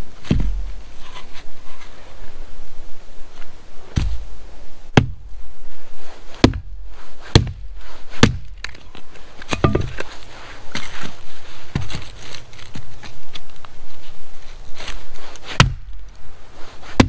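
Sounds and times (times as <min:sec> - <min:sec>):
axe chopping wood: 0:00.2 - 0:00.6, 0:04.9 - 0:05.3, 0:06.4 - 0:08.8, 0:09.5 - 0:10.1, 0:15.6 - 0:16.0.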